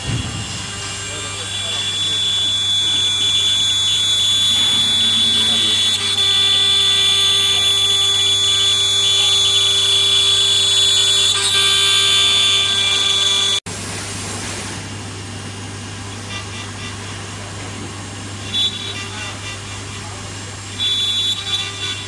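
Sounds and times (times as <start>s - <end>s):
router spindle whining cutting wood: 0.0s - 13.6s.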